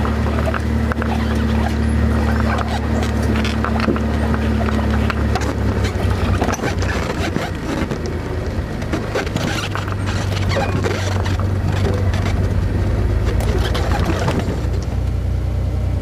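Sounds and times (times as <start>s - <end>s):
vehicle body knocks and rattles: 0.0s - 15.1s
vehicle engine droning: 0.0s - 16.0s.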